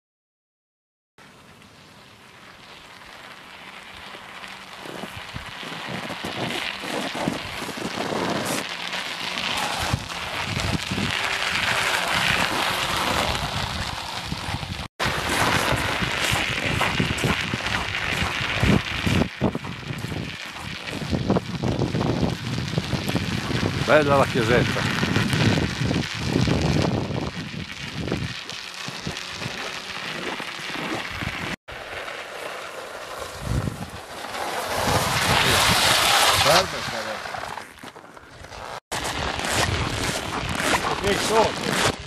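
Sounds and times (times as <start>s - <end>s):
bike tyres crunching on snow: 1.2s - 42.0s
wind on microphone: 9.3s - 31.6s, 33.3s - 37.2s, 39.1s - 42.0s.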